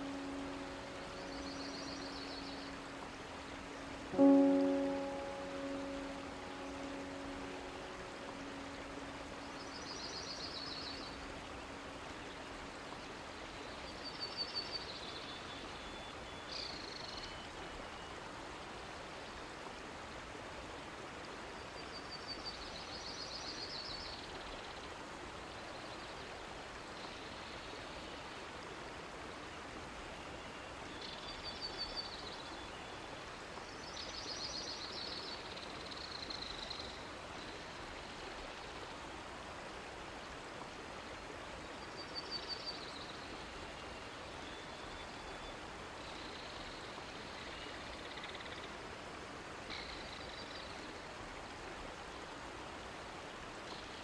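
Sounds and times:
low musical chord: 0.0 - 13.1
running water: 0.0 - 54.0.

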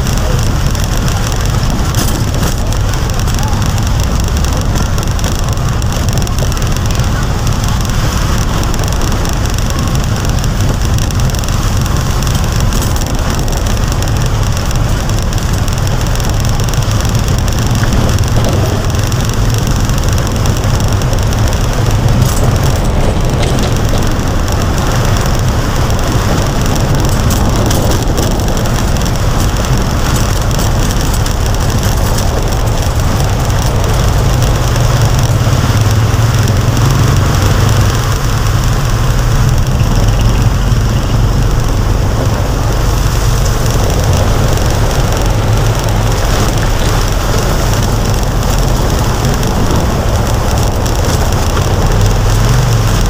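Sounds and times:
rain and wet road hiss: 0.0 - 53.0
vehicle engine rumble: 0.0 - 53.0.

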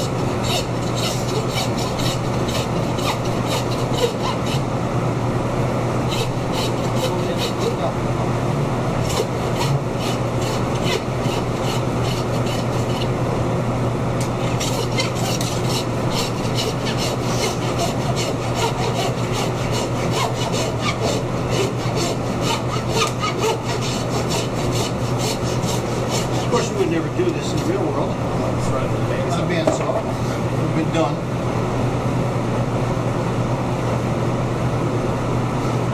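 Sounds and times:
hand saw cutting through bone: 0.0 - 4.7, 6.0 - 7.9, 9.0 - 13.1, 14.4 - 26.9.

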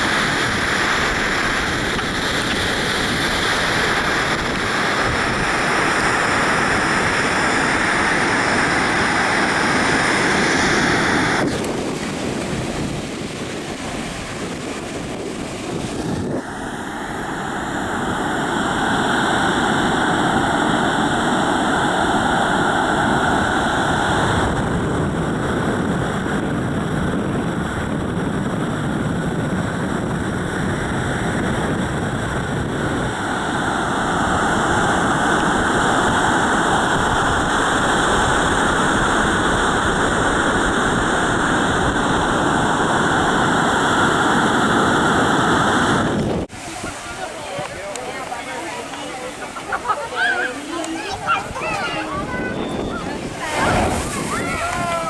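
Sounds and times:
surf breaking on a beach: 0.0 - 55.0
wind on microphone: 0.0 - 55.0.

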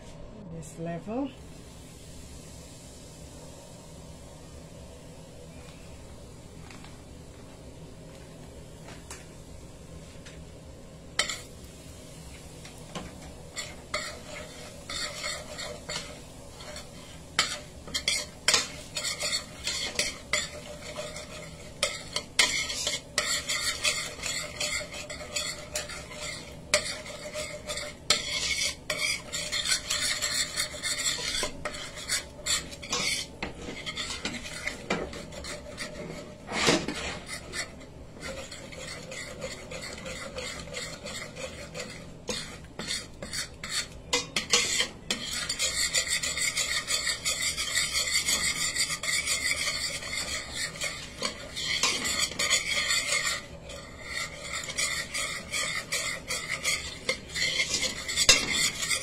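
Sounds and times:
spices frying in hot oil: 0.0 - 59.0
metal spoon scraping metal pot: 11.2 - 11.5, 13.5 - 59.0.

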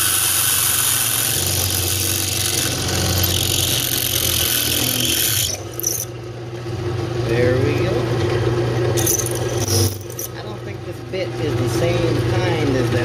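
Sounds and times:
drill bit grinding metal: 0.0 - 6.2, 9.0 - 10.3
drill press motor hum: 0.0 - 7.0, 8.0 - 10.3.

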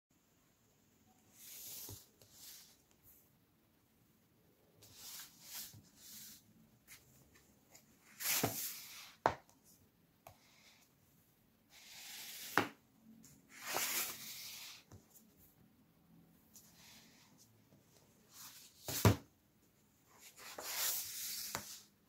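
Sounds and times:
books sliding across table: 1.3 - 2.9, 4.8 - 7.0, 7.7 - 9.3, 11.7 - 12.8, 13.5 - 15.0, 18.4 - 19.2, 20.2 - 21.9.

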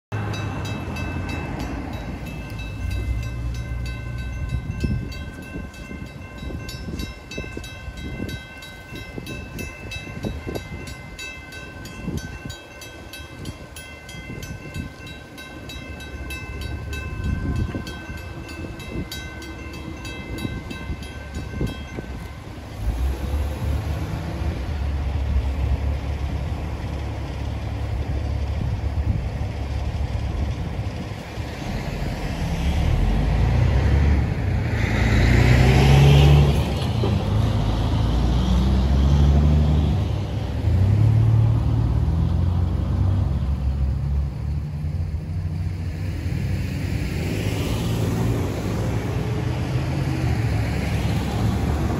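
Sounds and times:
railroad crossing bell ringing: 0.1 - 23.5
road traffic rumbling: 0.1 - 51.9.

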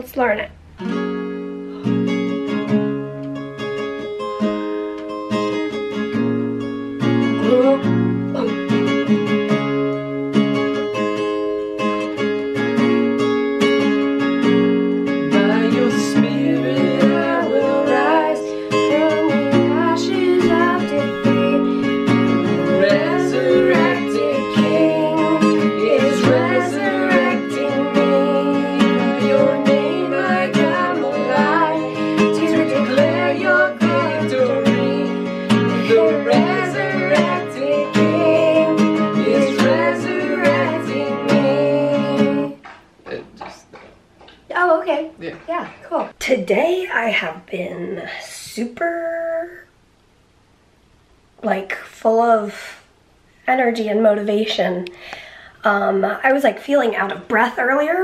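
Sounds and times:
acoustic guitar strumming: 0.0 - 43.2
man and woman singing: 15.2 - 42.7.

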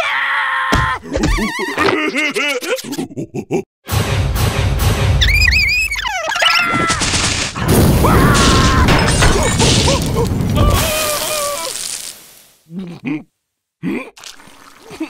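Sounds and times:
cartoon scream: 5.2 - 7.2, 8.0 - 9.1, 10.6 - 12.0.

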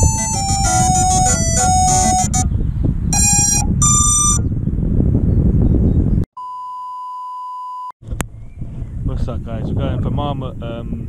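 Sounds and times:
steady test tone: 0.0 - 2.5, 3.2 - 4.5
wind rumbling on microphone: 0.0 - 6.2, 8.0 - 11.0
short electronic beeps: 3.2 - 4.5.

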